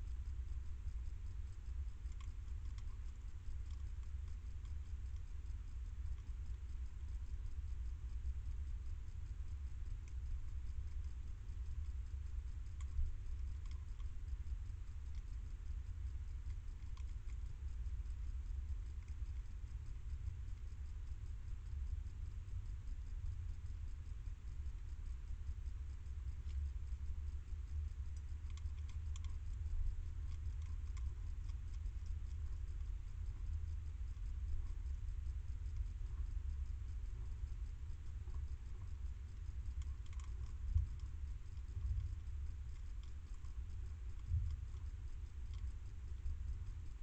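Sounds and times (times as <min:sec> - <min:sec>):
low steady rumble: 0:00.0 - 0:47.0
steady low hum: 0:00.0 - 0:47.0
animal chewing clicks: 0:12.7 - 0:14.1, 0:16.3 - 0:17.5, 0:27.8 - 0:34.3, 0:37.9 - 0:45.8.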